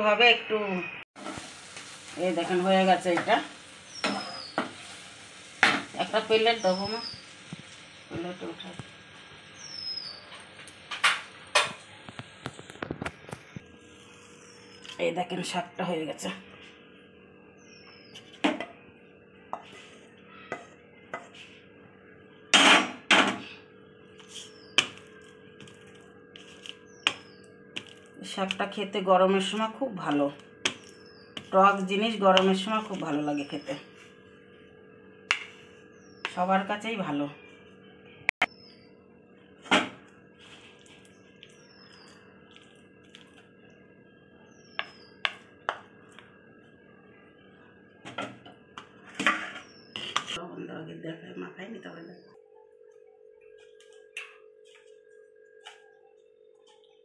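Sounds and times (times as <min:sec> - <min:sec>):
rough scraping on plate: 0:49.1 - 0:50.4.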